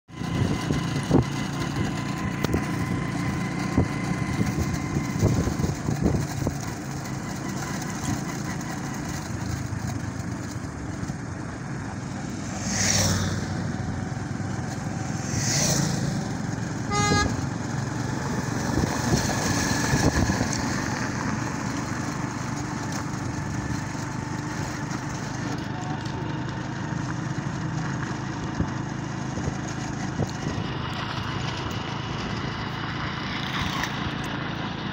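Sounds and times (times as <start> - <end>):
road and wind noise: 0.1 - 34.9
vehicle engine hum: 0.1 - 34.9
car horn toot: 16.8 - 17.5.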